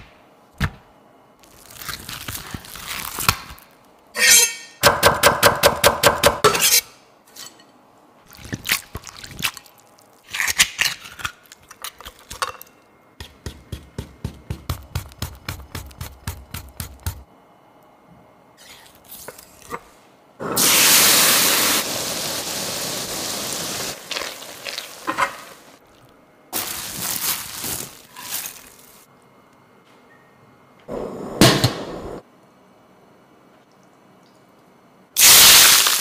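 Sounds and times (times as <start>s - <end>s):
garlic sizzling in hot oil: 20.6s - 25.7s.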